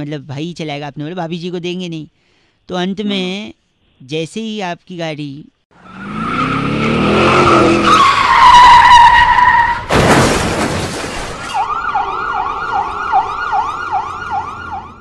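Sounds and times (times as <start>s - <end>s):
car tyres screeching: 5.8s - 10.0s
loud crash: 9.7s - 11.7s
ambulance siren: 11.5s - 15.0s.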